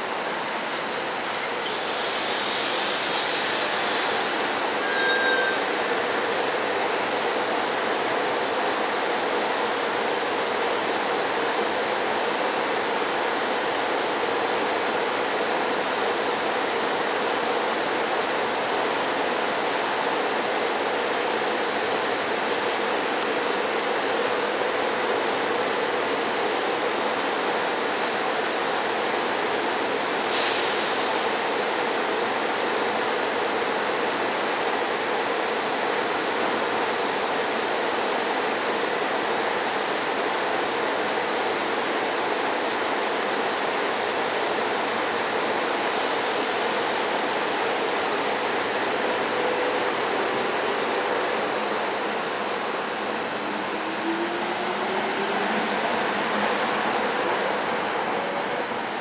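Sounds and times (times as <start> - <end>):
train equipment hum and whine: 0.0 - 59.0
brief hiss: 1.4 - 5.7, 30.3 - 31.3.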